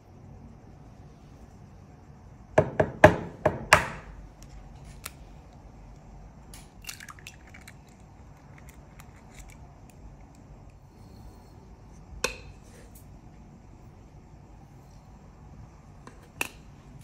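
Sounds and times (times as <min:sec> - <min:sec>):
eggshell crackling open: 0:06.8 - 0:10.6.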